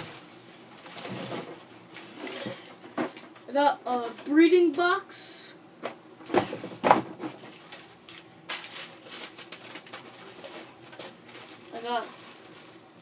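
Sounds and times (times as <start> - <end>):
packaging clicking and rustling: 7.3 - 12.8.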